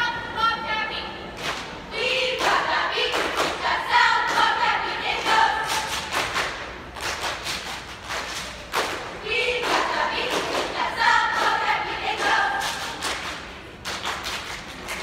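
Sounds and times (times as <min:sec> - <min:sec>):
cheer squad chanting in unison: 0:01.9 - 0:06.4, 0:09.0 - 0:13.1.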